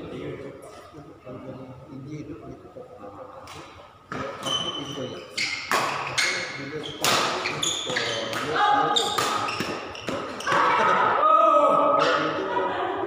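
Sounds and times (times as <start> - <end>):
rackets striking shuttlecock: 5.7 - 10.6.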